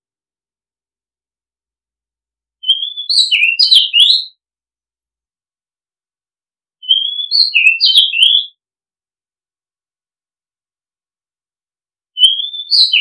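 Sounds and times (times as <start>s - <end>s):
bird singing whistled phrases: 2.6s - 4.4s, 6.8s - 8.6s, 12.2s - 13.0s.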